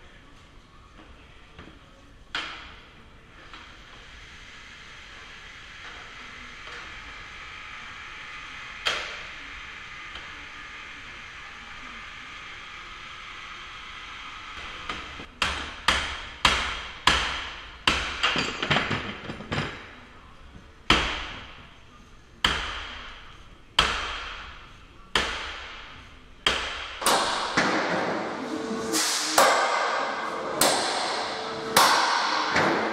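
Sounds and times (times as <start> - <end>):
hammer striking steel: 26.4 - 32.9.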